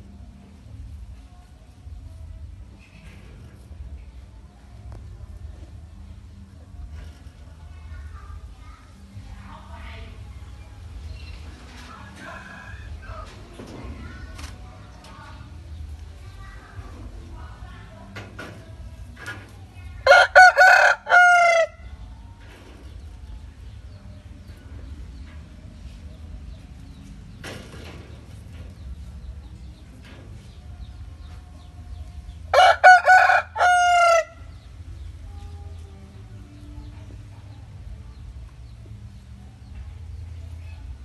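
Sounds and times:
rooster crowing: 20.1s - 21.8s, 32.5s - 34.4s.

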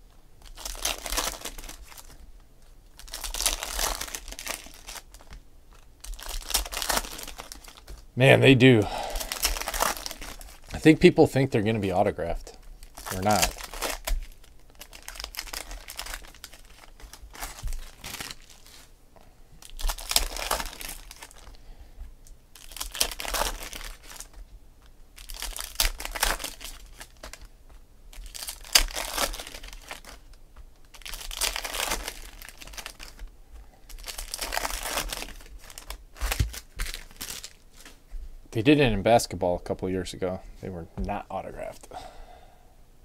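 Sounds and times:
foil wrappers torn and crinkled: 0.4s - 2.2s, 2.9s - 8.1s, 9.1s - 10.9s, 12.7s - 18.9s, 19.6s - 21.6s, 22.5s - 24.4s, 25.2s - 27.5s, 28.1s - 38.0s.

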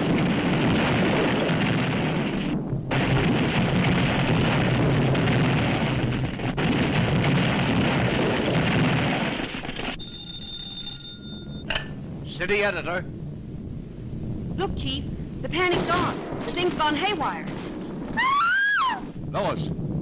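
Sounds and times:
cartoon crashes and explosions: 0.0s - 10.1s, 14.6s - 20.0s
telephone bell ringing: 10.0s - 11.7s.

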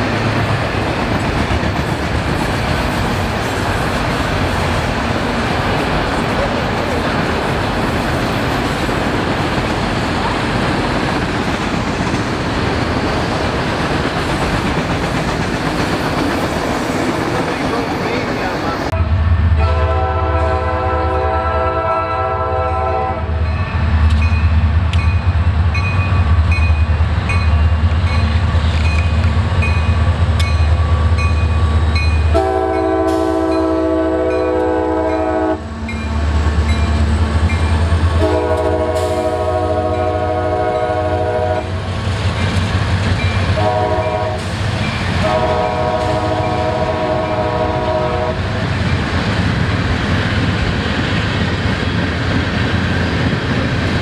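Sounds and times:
diesel locomotive engine rumble: 0.0s - 54.0s
rail and wheel noise: 0.0s - 54.0s
train air horn blasts: 19.6s - 23.4s, 32.3s - 35.9s, 38.2s - 41.8s, 43.6s - 44.5s, 45.2s - 48.4s.

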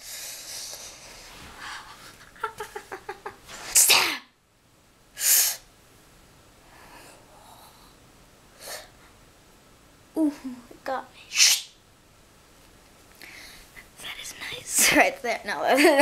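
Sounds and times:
boy hissing and huffing: 0.0s - 2.2s, 3.5s - 4.2s, 5.2s - 5.7s, 8.6s - 9.0s, 11.2s - 11.7s
boy sneezing: 3.5s - 4.3s, 5.2s - 5.6s, 11.3s - 11.8s.

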